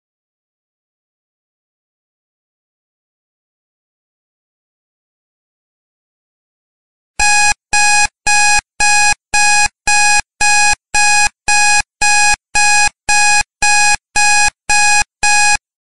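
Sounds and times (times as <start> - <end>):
timer alarm beeping: 7.2 - 15.6.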